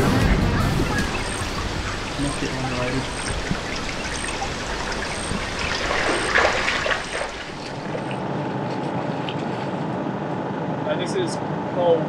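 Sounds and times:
creek water trickling: 0.8s - 9.7s.

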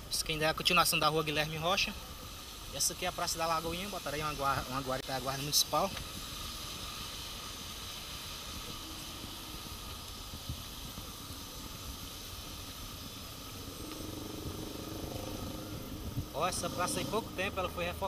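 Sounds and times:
heavy rain falling: 6.6s - 18.0s.

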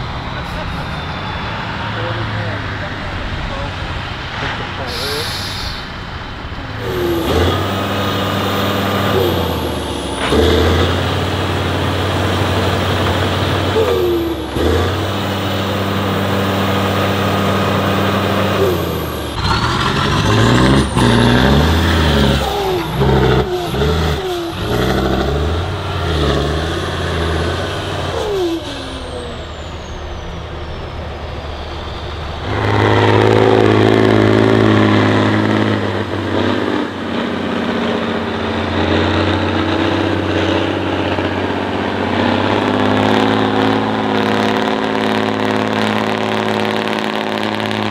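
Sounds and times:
truck engine revving: 0.0s - 47.9s.

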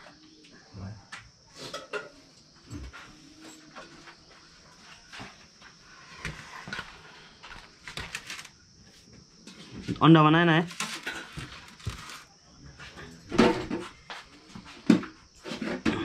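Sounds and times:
plates and utensils clinking: 1.6s - 2.3s.

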